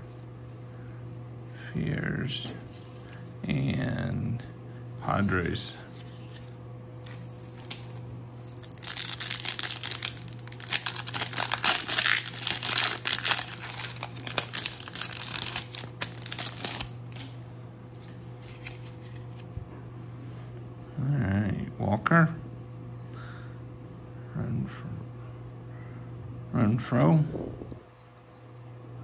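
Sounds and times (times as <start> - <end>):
foil wrapper crinkling: 6.0 - 17.4.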